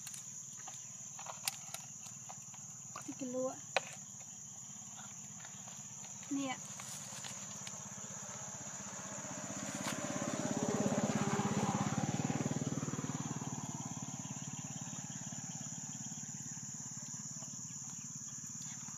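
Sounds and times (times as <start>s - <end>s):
high-pitched insect drone: 0.0s - 18.9s
small engine passing by: 5.2s - 18.5s.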